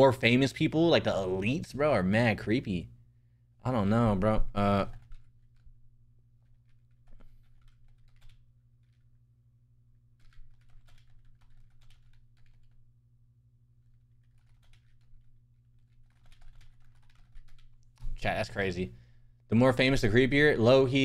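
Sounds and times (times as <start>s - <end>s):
keyboard typing: 4.2s - 5.8s, 6.4s - 9.1s, 10.1s - 12.8s, 13.8s - 18.0s.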